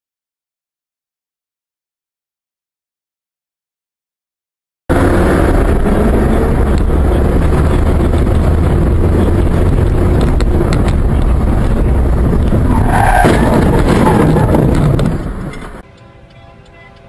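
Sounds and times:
wind buffeting microphone: 0:04.9 - 0:15.8
vehicle rumble: 0:04.9 - 0:17.0.

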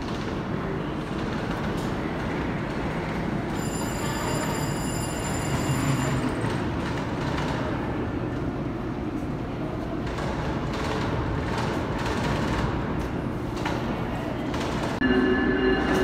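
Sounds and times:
train rumbling on rails: 0:00.0 - 0:16.0
high steady whine: 0:15.0 - 0:16.0.

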